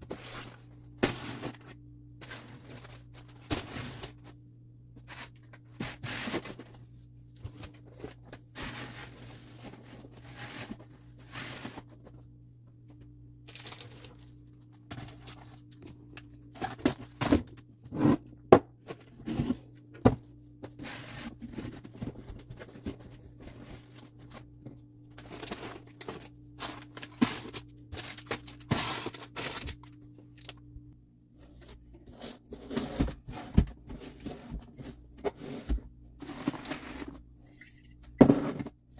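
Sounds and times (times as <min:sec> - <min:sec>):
packages scraping and knocking: 0:00.0 - 0:04.4, 0:05.0 - 0:06.8, 0:07.4 - 0:12.2, 0:13.5 - 0:30.4, 0:31.4 - 0:37.3
steady low hum: 0:00.0 - 0:38.9
plastic bags crinkling: 0:13.4 - 0:17.2, 0:25.2 - 0:30.6.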